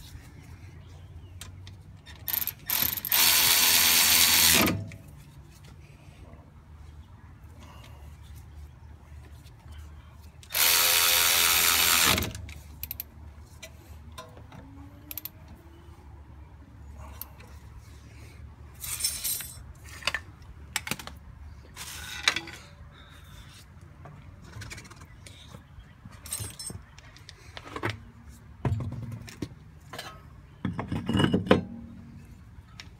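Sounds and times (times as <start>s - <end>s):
metal tools clinking: 18.8s - 20.2s, 26.2s - 26.9s.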